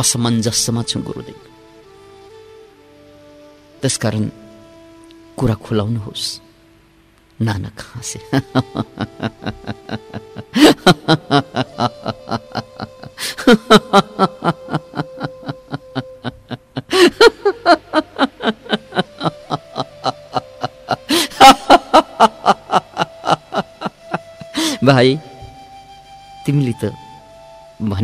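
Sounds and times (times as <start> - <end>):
soft background music: 0.0 - 28.0
man laughing: 8.3 - 24.6.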